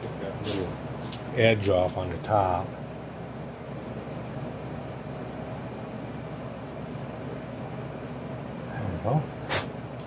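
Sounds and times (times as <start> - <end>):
low hum of room noise: 0.0 - 10.0.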